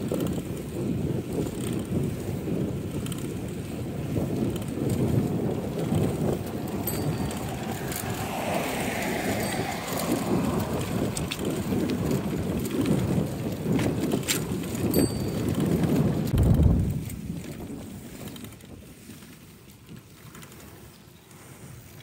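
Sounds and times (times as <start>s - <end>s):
wind rumbling on microphone: 0.0s - 22.0s
car passing: 4.4s - 13.7s.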